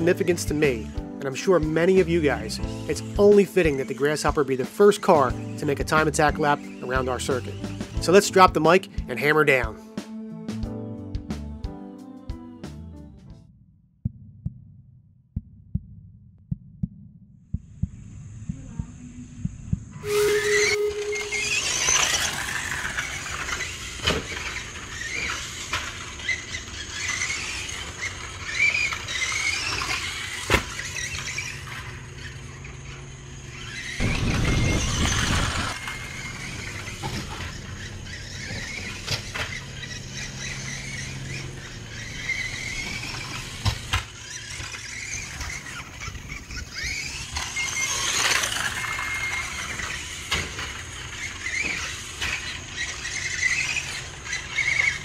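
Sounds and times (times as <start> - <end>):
electric motor and gearbox whining: 0.0 - 8.7, 19.9 - 55.0
loud rush of noise: 34.0 - 35.8.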